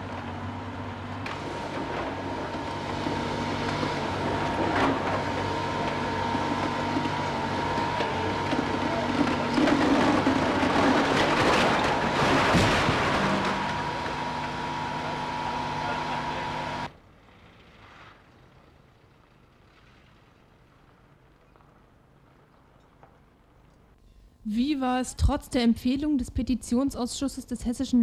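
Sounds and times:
excavator diesel engine running: 0.0 - 17.6
rubble falling: 1.2 - 15.0
masonry and timbers crashing down: 1.2 - 15.8.

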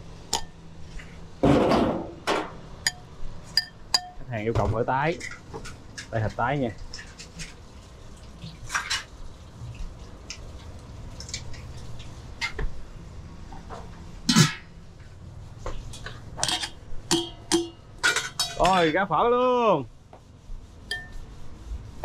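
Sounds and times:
utensils clinking against bowls: 2.8 - 4.3, 15.9 - 19.0.

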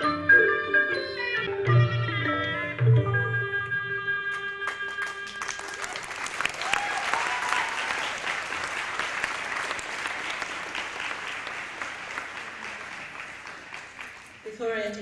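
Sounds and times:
audience applauding: 4.4 - 14.5.

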